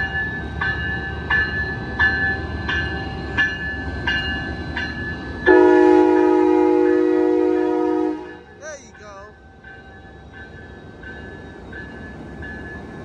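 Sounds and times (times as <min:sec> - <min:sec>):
locomotive bell ringing: 0:00.0 - 0:13.0
low rumble of rolling train: 0:00.0 - 0:13.0
train horn blowing: 0:05.5 - 0:08.6.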